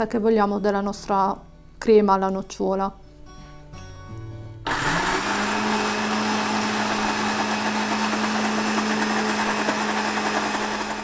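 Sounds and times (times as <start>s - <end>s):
blender running: 4.7s - 11.0s.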